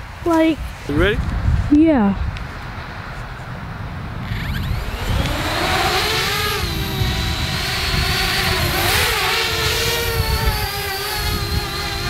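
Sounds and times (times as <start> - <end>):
wind rumble on microphone: 0.0 - 12.0
drone motors whining: 4.2 - 12.0.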